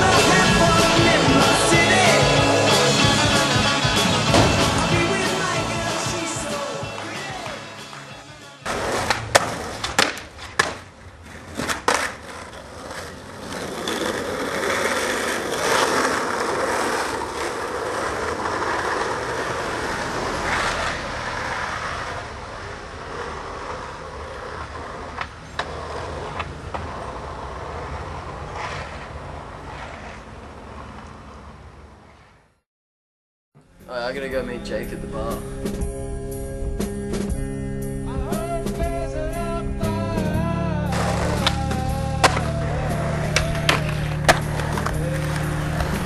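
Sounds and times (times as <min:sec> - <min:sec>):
skateboard wheels rolling on asphalt: 0:00.0 - 0:32.6, 0:35.6 - 0:46.0
skateboard clacks: 0:04.3 - 0:31.4, 0:40.9 - 0:46.0.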